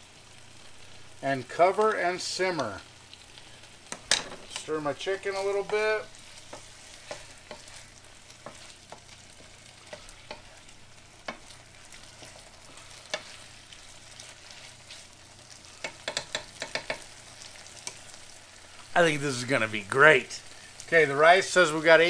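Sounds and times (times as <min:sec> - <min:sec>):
chicken sizzling in frying pan: 0:00.0 - 0:22.0
spatula scraping and knocking pan: 0:03.8 - 0:18.2.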